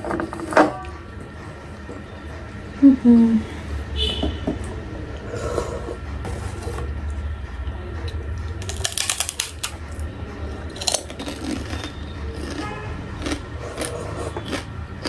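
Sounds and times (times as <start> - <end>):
steady low hum: 0.0 - 15.0
chewing: 10.7 - 15.0.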